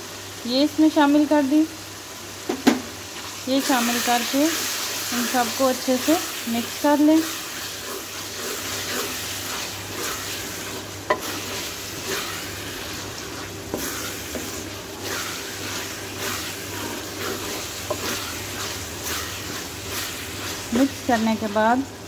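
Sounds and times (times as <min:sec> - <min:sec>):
meat sizzling in a metal pan: 0:00.0 - 0:22.0
wooden spatula scraping a pan: 0:03.9 - 0:21.7.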